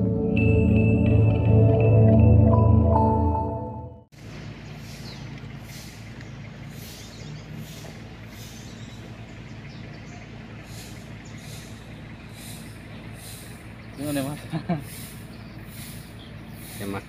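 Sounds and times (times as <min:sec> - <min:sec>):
low engine hum: 0:04.0 - 0:17.0.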